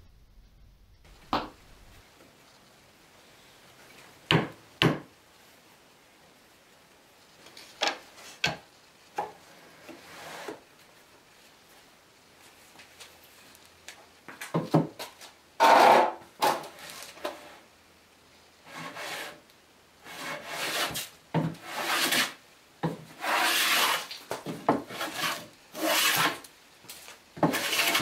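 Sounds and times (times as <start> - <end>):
hand plane rasping on wood: 20.1 - 21.0, 21.6 - 22.4, 23.1 - 24.1, 24.8 - 26.4, 27.4 - 28.0.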